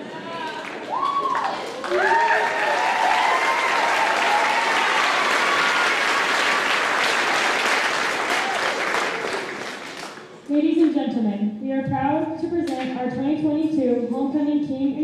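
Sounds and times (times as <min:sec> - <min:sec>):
audience clapping: 0:00.0 - 0:10.5
shouts and whoops: 0:00.3 - 0:06.3.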